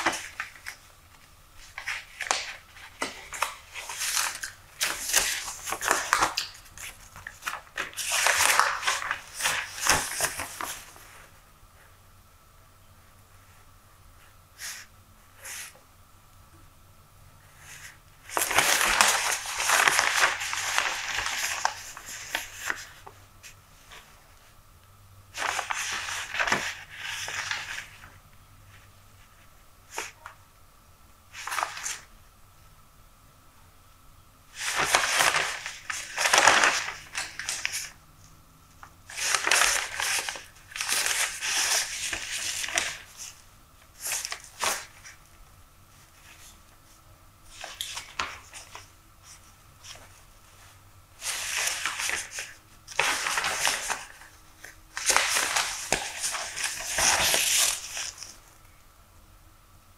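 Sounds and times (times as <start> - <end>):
paper crackles: 0.0 - 11.3, 17.6 - 24.6, 25.3 - 30.4, 31.3 - 32.1, 34.5 - 38.0, 38.8 - 58.6
newspaper pages rustling: 0.0 - 11.4, 17.6 - 24.6, 25.3 - 30.4, 31.3 - 32.1, 34.5 - 38.0, 38.8 - 58.6.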